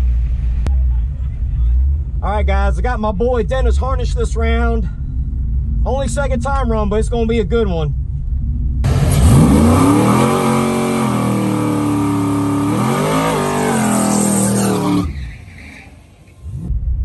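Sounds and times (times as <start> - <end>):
car engine revving hard: 8.9 - 16.7.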